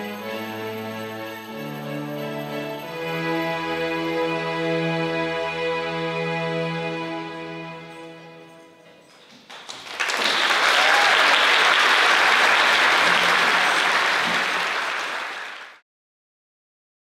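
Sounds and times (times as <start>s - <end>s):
audience applause: 9.1s - 15.8s.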